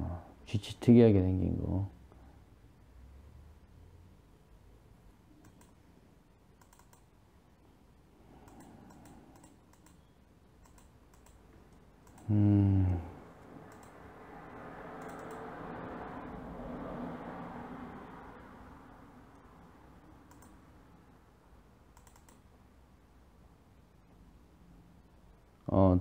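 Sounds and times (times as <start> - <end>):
computer mouse clicking: 5.3 - 5.8, 6.5 - 7.1, 8.3 - 12.4, 13.4 - 14.1, 14.8 - 15.6, 20.2 - 20.6, 21.9 - 22.6.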